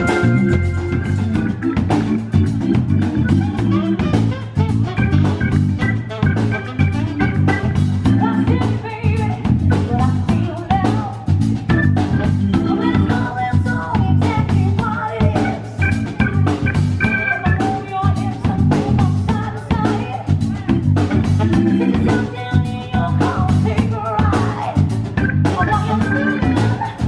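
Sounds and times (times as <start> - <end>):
live band playing: 0.0 - 27.0
woman singing: 8.0 - 11.5, 12.3 - 16.0, 17.1 - 27.0.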